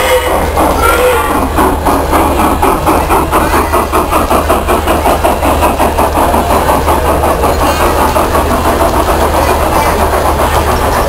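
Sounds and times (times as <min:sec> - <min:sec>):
model train motor hum: 0:00.0 - 0:11.0
train wheels pulsing: 0:00.0 - 0:11.0.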